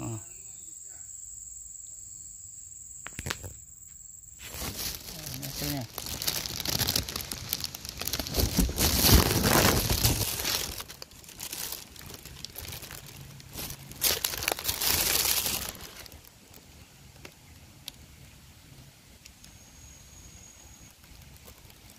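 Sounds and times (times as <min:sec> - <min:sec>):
plastic bag crinkling: 0:04.4 - 0:16.7, 0:20.7 - 0:21.9.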